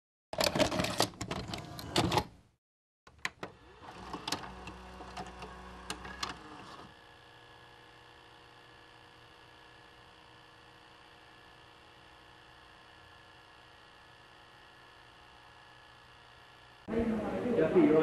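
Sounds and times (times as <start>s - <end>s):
tape loading whir: 0.4s - 2.4s, 3.1s - 16.9s
video cassette mechanism clattering: 3.1s - 6.8s
faint hum: 3.4s - 18.0s.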